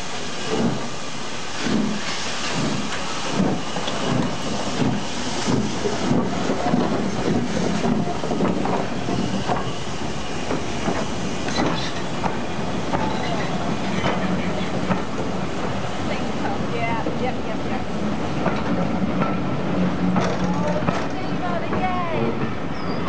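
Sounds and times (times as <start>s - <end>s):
steam hiss: 0.0s - 20.2s
steam locomotive chuffing: 0.0s - 23.0s
train wheels clicking over rail joints: 1.6s - 23.0s.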